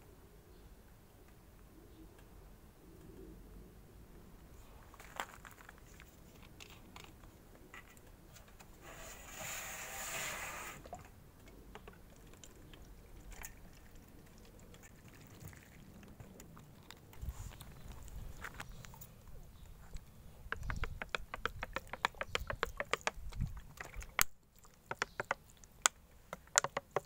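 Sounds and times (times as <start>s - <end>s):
water pouring into plastic bottle: 12.3s - 17.2s.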